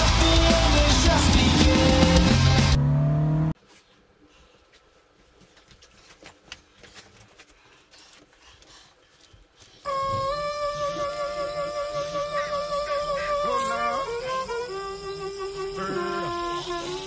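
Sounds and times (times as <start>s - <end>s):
car engine accelerating: 0.0s - 3.6s.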